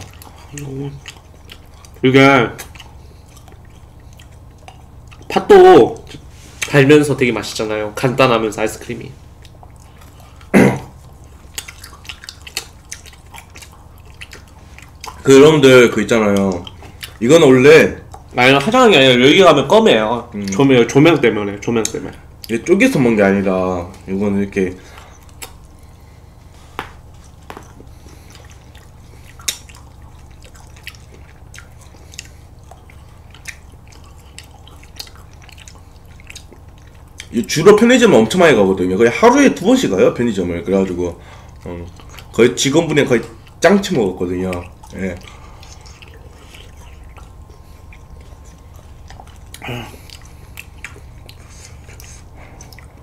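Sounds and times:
steady low hum: 0.0s - 53.0s
wet mouth clicks and smacks: 2.6s - 5.3s, 9.4s - 15.2s, 24.9s - 25.8s, 26.7s - 37.3s, 44.5s - 53.0s.

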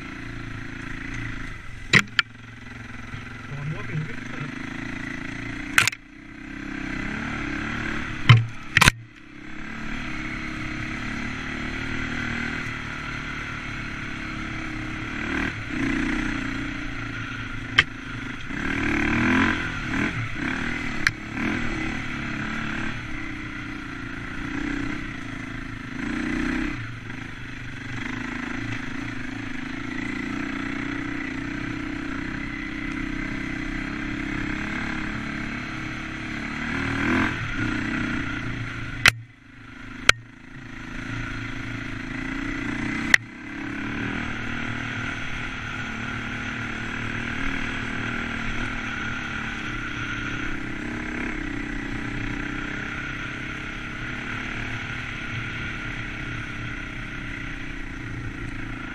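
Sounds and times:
dirt bike engine revving: 0.0s - 58.9s
sharp knocks: 8.2s - 9.0s.

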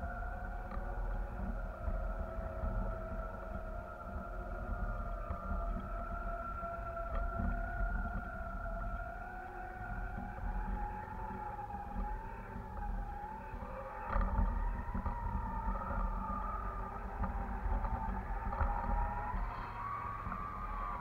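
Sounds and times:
faint wavering whistling tone: 0.0s - 21.0s
wind rumbling on microphone: 0.0s - 21.0s.

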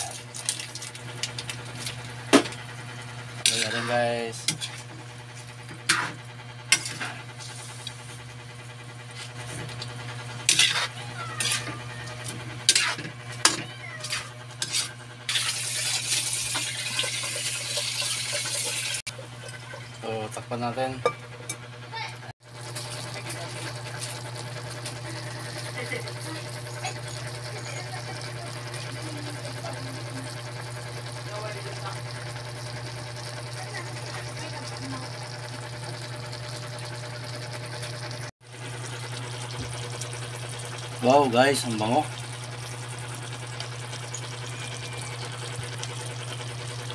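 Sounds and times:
stove humming: 0.0s - 46.9s
broth bubbling in a wok: 22.4s - 46.9s.

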